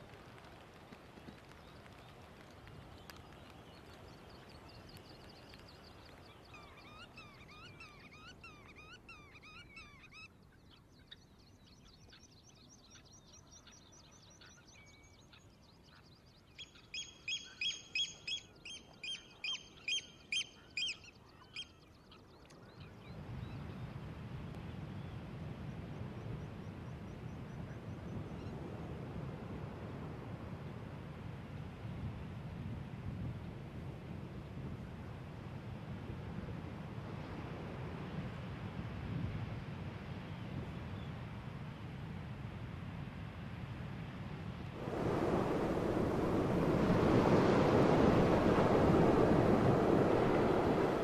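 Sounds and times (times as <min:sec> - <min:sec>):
birds chirping: 0:02.8 - 0:23.1
faint background wash: 0:44.1 - 0:51.0
low rumble: 0:44.8 - 0:51.0.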